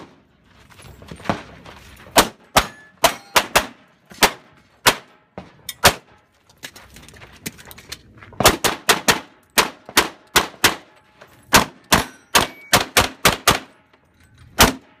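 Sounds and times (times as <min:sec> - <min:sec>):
pistol shots in quick pairs: 0:02.2 - 0:06.1, 0:08.4 - 0:10.9, 0:11.5 - 0:13.8.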